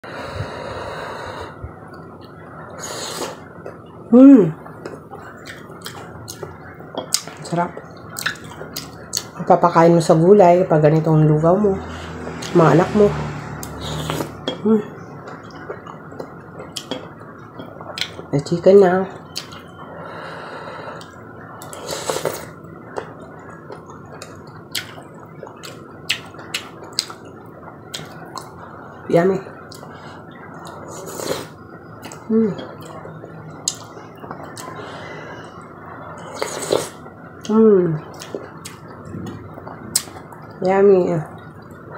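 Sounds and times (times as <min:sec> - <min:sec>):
slurping from a spoon: 0:21.6 - 0:22.6, 0:36.2 - 0:37.0.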